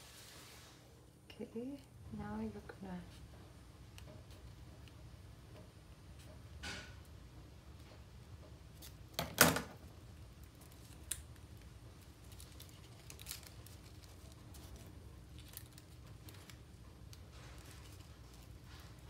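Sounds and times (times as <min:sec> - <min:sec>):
paper rustling: 0:10.4 - 0:19.0.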